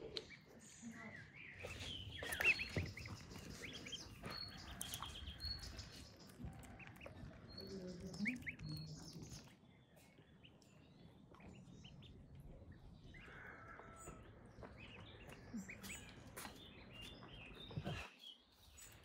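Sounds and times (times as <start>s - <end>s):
chicks chirping: 1.6s - 9.5s.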